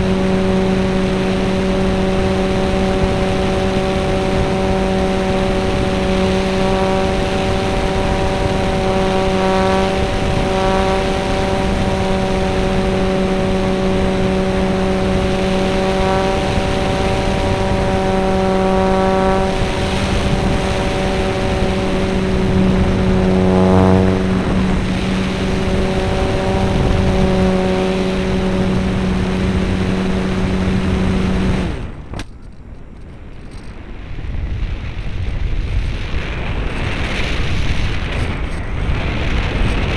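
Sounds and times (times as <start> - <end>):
model aeroplane motor droning: 0.0 - 39.9
rush of air: 13.9 - 32.1.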